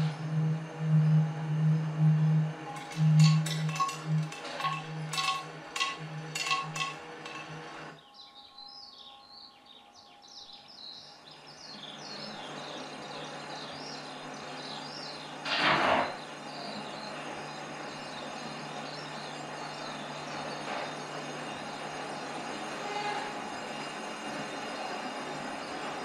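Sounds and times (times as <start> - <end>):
low hum: 0.0 - 7.9
birds chirping: 2.7 - 15.4, 16.1 - 22.6.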